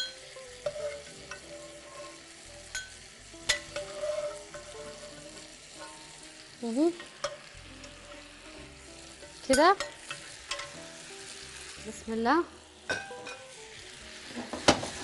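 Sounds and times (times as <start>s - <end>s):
pans simmering: 0.0s - 15.0s
metal strainer clinking: 9.2s - 10.8s.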